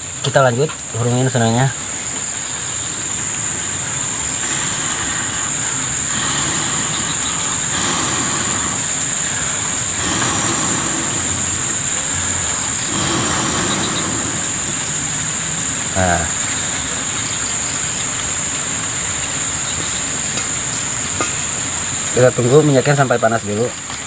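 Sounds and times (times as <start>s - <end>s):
insects droning: 0.0s - 24.0s.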